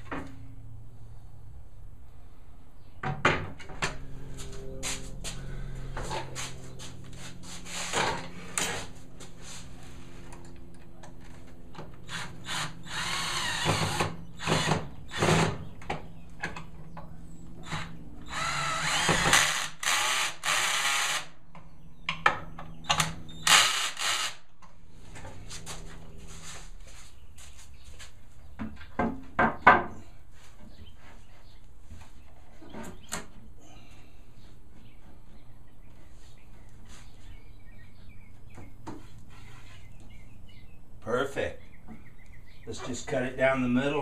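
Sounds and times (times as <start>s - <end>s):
cordless drill driving screws: 12.1s - 15.5s, 17.7s - 21.3s, 23.4s - 24.4s.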